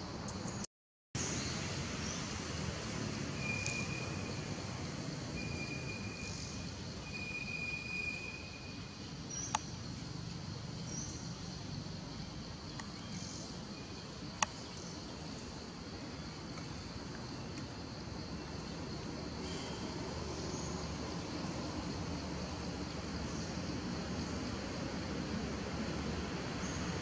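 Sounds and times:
thin high calls: 0:03.3 - 0:04.6.

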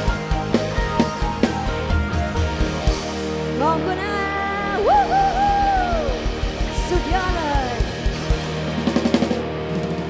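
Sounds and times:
bass drum beat: 0:00.0 - 0:03.4, 0:04.8 - 0:09.5
electric guitar: 0:00.0 - 0:10.0
drum hits: 0:05.4 - 0:10.0.

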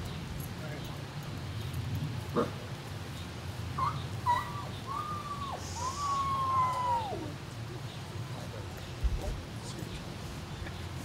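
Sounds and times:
dog yipping: 0:03.8 - 0:04.8.

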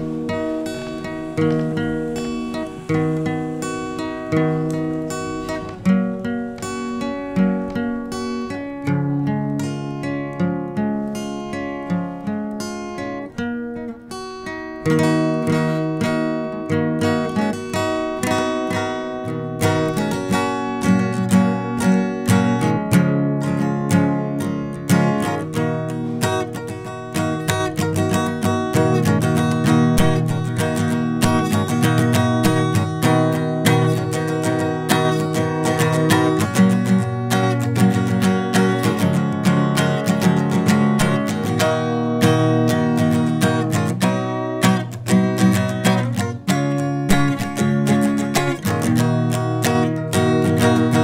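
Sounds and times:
strummed acoustic guitar: 0:00.0 - 0:51.0.

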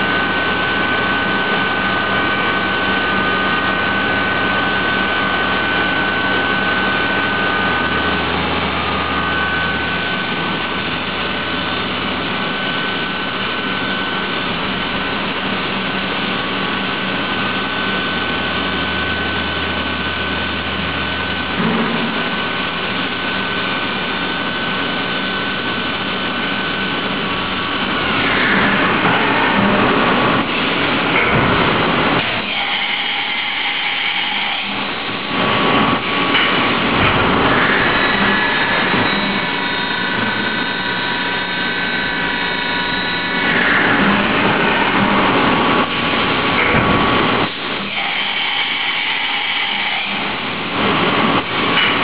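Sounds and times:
low hum: 0:00.0 - 0:15.2
milling spindle high whine: 0:00.0 - 0:52.0.

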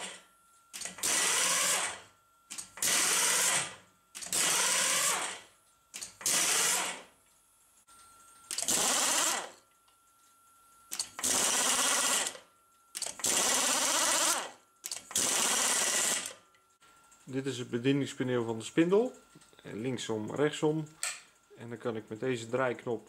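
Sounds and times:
pneumatic impact driver hammering: 0:00.8 - 0:07.1, 0:08.5 - 0:09.6, 0:10.9 - 0:12.4, 0:13.0 - 0:16.3.

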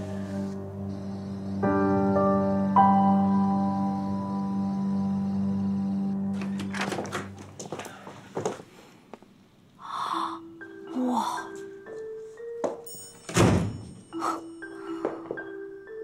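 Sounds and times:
light background music: 0:00.0 - 0:07.6, 0:09.8 - 0:16.0
door heavy thump: 0:13.3 - 0:13.9.

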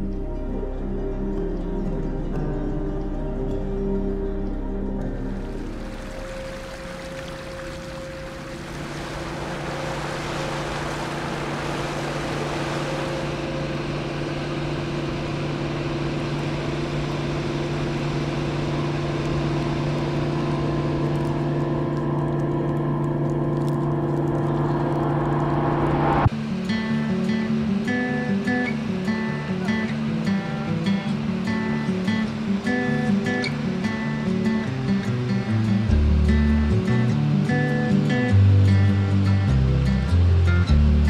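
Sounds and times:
low drone music: 0:00.0 - 0:41.0
strummed acoustic guitar: 0:26.3 - 0:41.0.

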